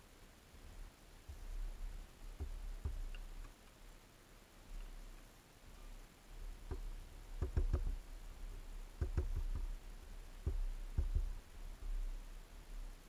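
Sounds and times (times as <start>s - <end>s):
bird pecking at feeder: 6.6s - 8.0s.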